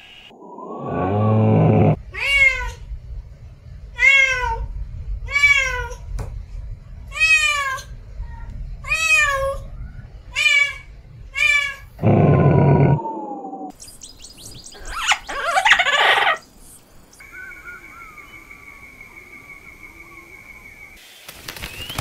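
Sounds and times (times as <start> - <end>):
camel calling: 0.8 - 2.0, 12.0 - 13.0.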